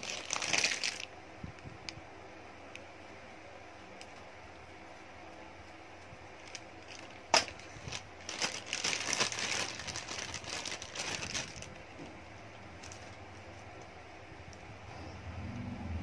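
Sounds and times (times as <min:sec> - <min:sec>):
plastic packaging crinkling: 0:00.0 - 0:01.1, 0:06.4 - 0:13.2.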